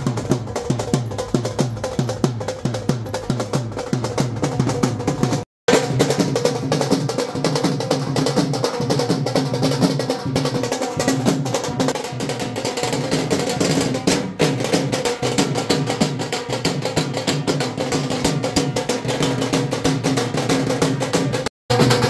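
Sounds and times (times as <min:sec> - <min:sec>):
dhol drums beating: 0:00.0 - 0:22.0.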